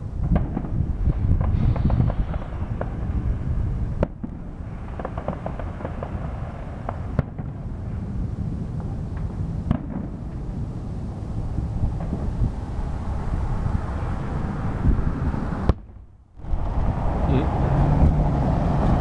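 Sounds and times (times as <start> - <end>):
firework bangs: 0.0 - 14.2
low rumble: 0.0 - 19.0
firework pops and crackles: 0.2 - 3.2, 4.0 - 10.8.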